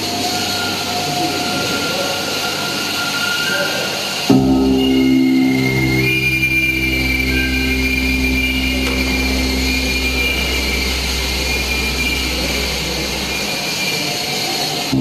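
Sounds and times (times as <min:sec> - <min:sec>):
hissing drone: 0:00.0 - 0:15.0
low hum: 0:04.3 - 0:14.0
steady high tone: 0:04.3 - 0:15.0.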